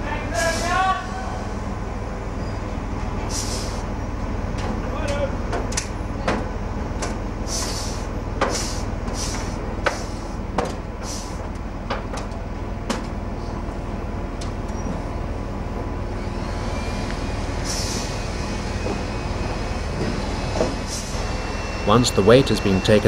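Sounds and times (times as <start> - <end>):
crane engine running: 0.0 - 23.0
short hisses: 3.3 - 3.8, 7.5 - 10.4, 11.0 - 11.4, 17.6 - 18.2
sharp knocks: 9.3 - 10.8.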